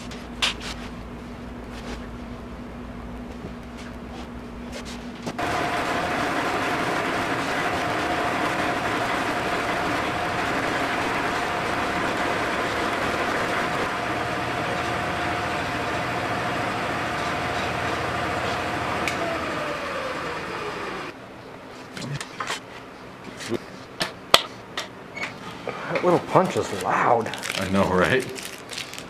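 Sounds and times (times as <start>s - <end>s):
buffing machine humming: 5.4s - 21.1s
motor spinning down: 5.4s - 21.1s.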